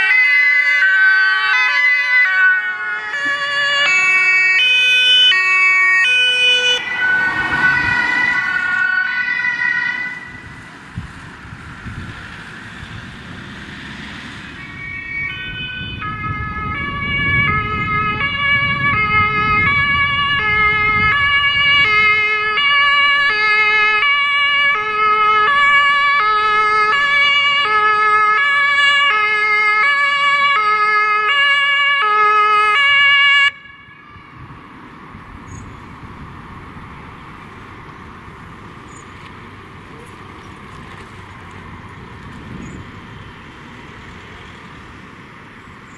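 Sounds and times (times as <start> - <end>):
two-tone siren: 0.0 - 10.7, 14.3 - 34.5
traffic noise: 0.0 - 45.9.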